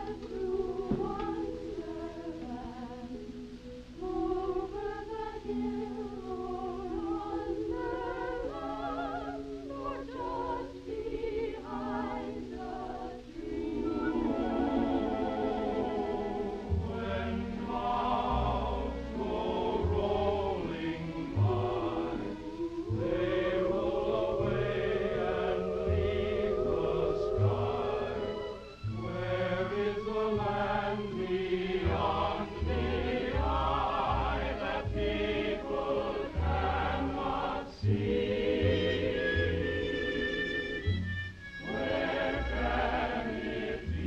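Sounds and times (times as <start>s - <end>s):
chorus singing with vibrato: 0.0s - 44.0s
orchestral accompaniment: 13.4s - 44.0s.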